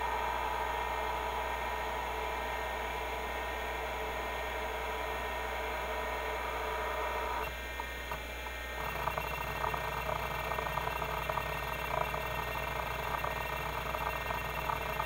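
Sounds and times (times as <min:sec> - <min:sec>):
hard drive spindle whine: 0:00.0 - 0:15.0
hard drive head clicking: 0:07.4 - 0:15.0.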